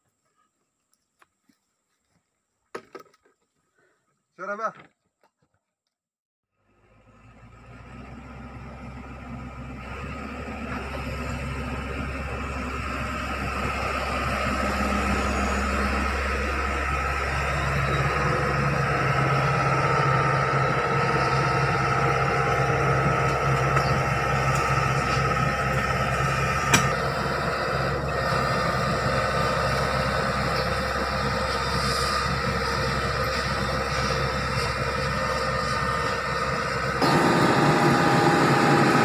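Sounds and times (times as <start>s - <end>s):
diesel engine drone: 6.5s - 39.0s
high hydraulic whine: 8.9s - 39.0s.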